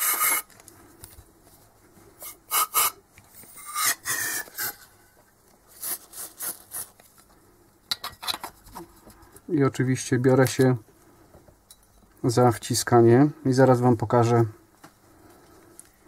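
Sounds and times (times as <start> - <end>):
aerosol can spraying: 2.2 - 3.0.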